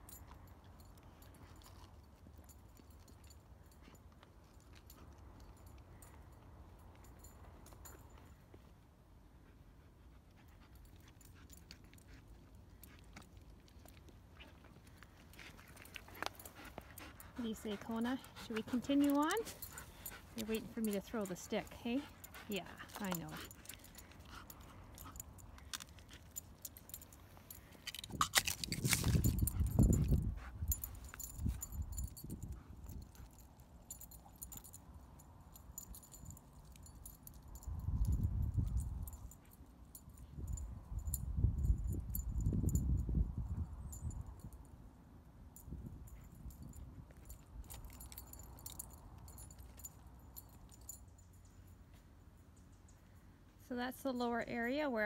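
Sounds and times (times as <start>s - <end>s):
dog collar tags jingling: 0.0s - 8.5s, 10.4s - 53.4s
dog panting: 15.4s - 27.6s, 29.2s - 34.7s.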